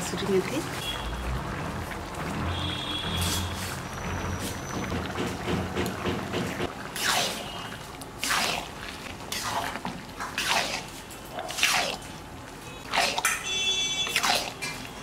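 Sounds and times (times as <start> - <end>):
spoon stirring in cooking pot: 6.5 - 12.2, 12.8 - 15.0.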